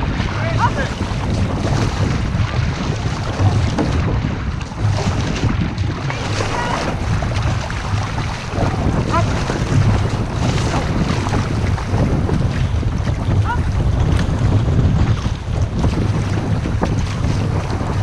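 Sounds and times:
paddle stroke splashes: 0:00.0 - 0:18.0
water rushing along canoe hull: 0:00.0 - 0:18.0
wind buffeting microphone: 0:00.0 - 0:18.0.

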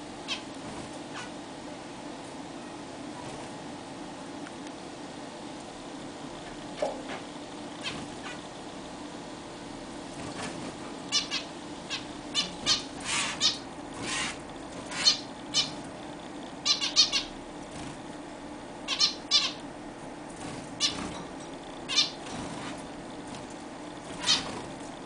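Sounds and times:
steady low hum: 0:00.0 - 0:25.0
zebra finches calling: 0:11.1 - 0:15.8, 0:16.6 - 0:17.4, 0:18.9 - 0:19.6, 0:20.8 - 0:21.1, 0:21.9 - 0:22.2, 0:24.1 - 0:24.6.

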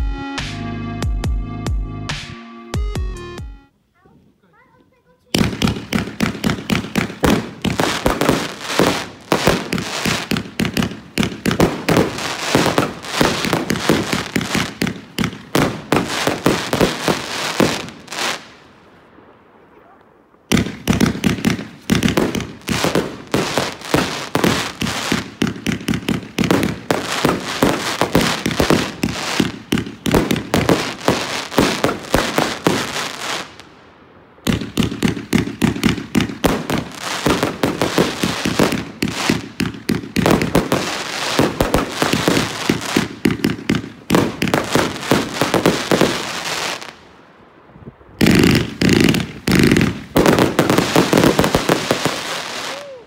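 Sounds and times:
fireworks launching and bursting: 0:04.1 - 0:53.0.

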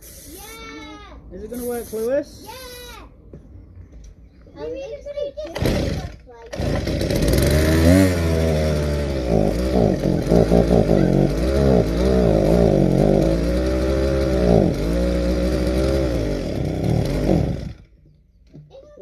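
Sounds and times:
small petrol engine revving: 0:05.5 - 0:18.0.

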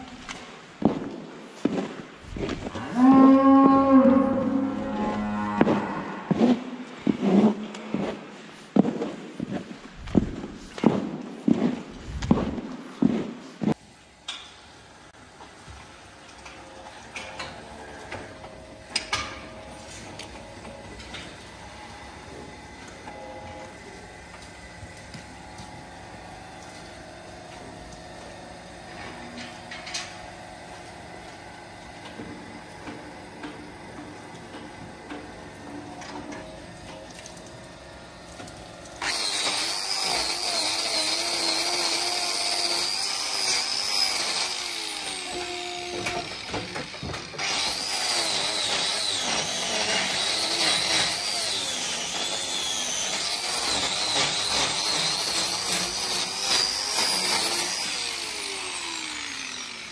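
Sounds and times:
barn background: 0:01.6 - 0:13.8
angle grinder whining: 0:39.0 - 0:59.9.

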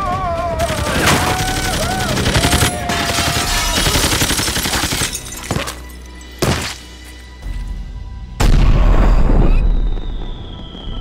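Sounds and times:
rapid automatic gunfire: 0:00.6 - 0:05.0.

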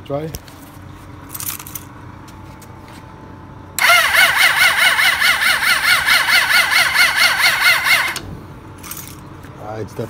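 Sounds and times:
electric starter cranking engine: 0:03.8 - 0:08.2.

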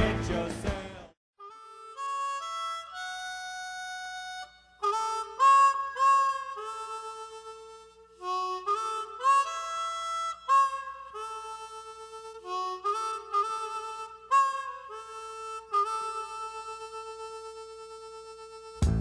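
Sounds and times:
harmonica solo in a song: 0:01.4 - 0:19.0.

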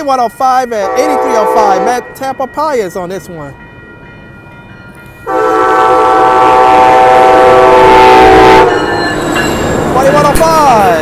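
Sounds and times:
train rumble: 0:00.0 - 0:11.0
locomotive horn chord: 0:00.9 - 0:02.1, 0:05.2 - 0:08.8.

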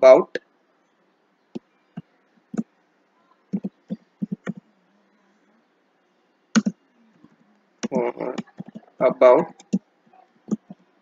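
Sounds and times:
computer keyboard typing: 0:03.5 - 0:04.6, 0:07.8 - 0:08.9.

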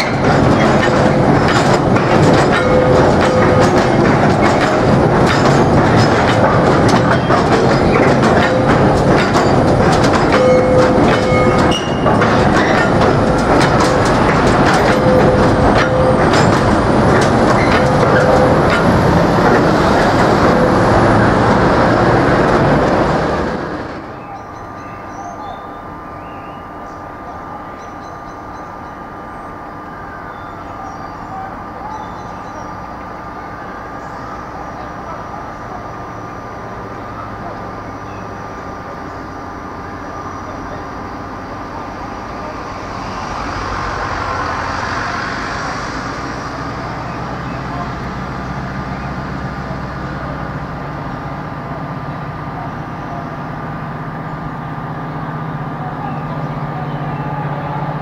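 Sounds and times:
rushing noise: 0:00.0 - 0:24.2, 0:40.9 - 0:52.6
diesel locomotive engine running: 0:00.0 - 0:58.0.

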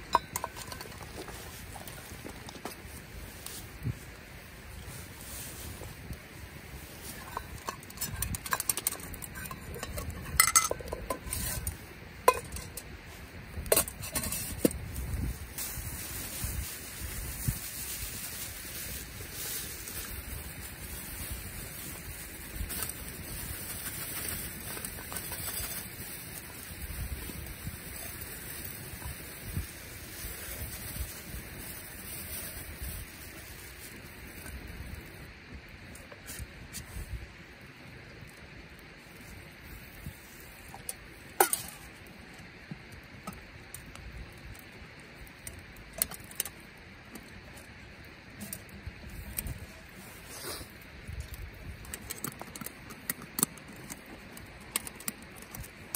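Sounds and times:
metal cups clinking: 0:00.0 - 0:01.3, 0:07.1 - 0:12.9
wind rumble on microphone: 0:00.0 - 0:41.2, 0:47.4 - 0:52.5
campfire hissing: 0:00.0 - 0:55.9
fire crackles: 0:00.0 - 0:55.9.

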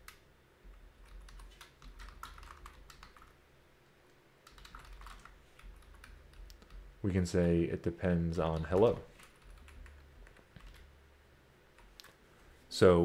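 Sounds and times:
quiet keyboard typing: 0:00.0 - 0:03.4, 0:04.4 - 0:07.0, 0:08.4 - 0:10.9, 0:11.7 - 0:12.2.

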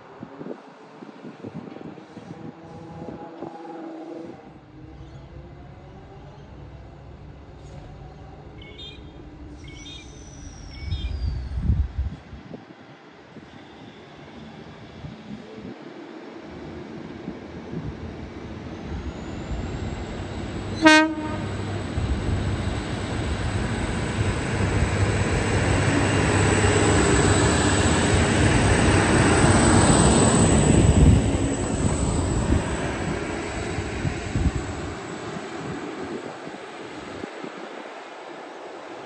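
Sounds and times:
train wheels on rails: 0:12.1 - 0:39.0
diesel engines: 0:17.6 - 0:37.3
train horn blast: 0:20.8 - 0:21.7.

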